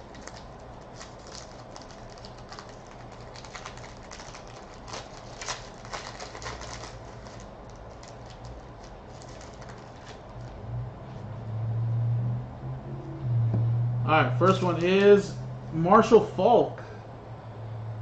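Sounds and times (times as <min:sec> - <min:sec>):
foil pack being torn and crinkled: 0:00.0 - 0:10.6.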